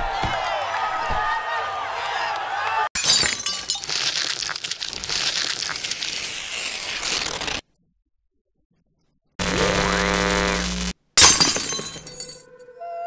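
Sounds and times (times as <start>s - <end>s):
paper crumpling and tearing: 3.8s - 7.6s.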